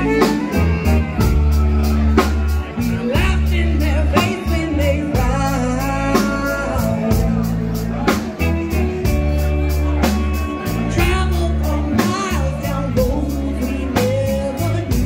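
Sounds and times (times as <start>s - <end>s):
drum kit steady beat: 0.0s - 15.0s
electric bass: 0.0s - 15.0s
woman singing lead: 2.9s - 7.8s, 10.0s - 15.0s.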